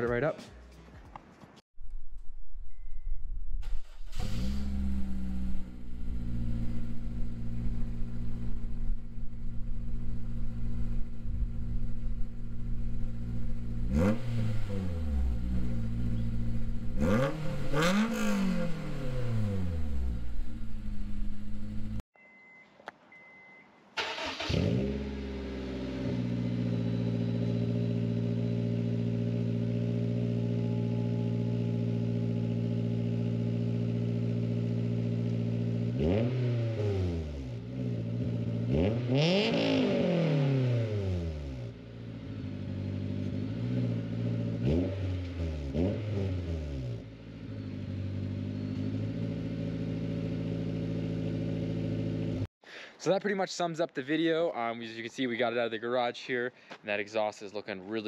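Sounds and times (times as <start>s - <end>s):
car engine starting and revving: 3.6s - 22.0s, 24.0s - 30.6s, 31.2s - 52.5s
car engine idling: 18.7s - 22.0s.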